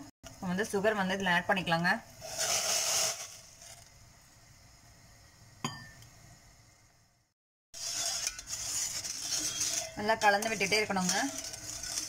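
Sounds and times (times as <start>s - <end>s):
spoon stirring in saucepan: 7.8s - 12.0s.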